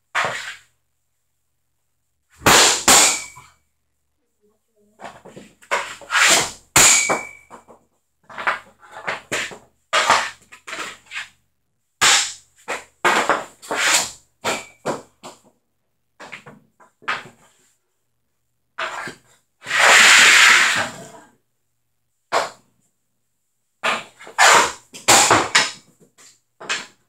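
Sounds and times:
pucks hitting net and wall: 0.1s - 0.6s, 2.4s - 3.6s, 5.0s - 11.4s, 12.0s - 15.6s, 16.2s - 17.7s, 18.8s - 21.1s, 22.3s - 22.7s, 23.8s - 27.0s
hockey stick clacking on concrete: 5.1s - 11.3s, 23.8s - 27.0s.

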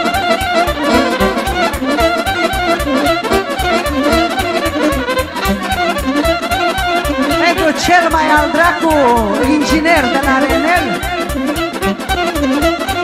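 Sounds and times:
bass beat: 0.0s - 13.0s
fast violin melody: 0.0s - 13.0s.

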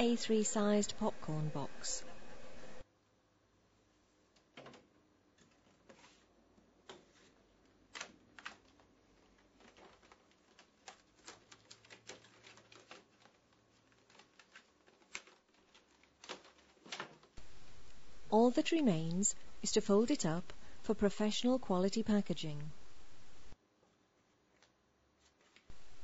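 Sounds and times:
card clicking and crackling: 7.9s - 17.3s.

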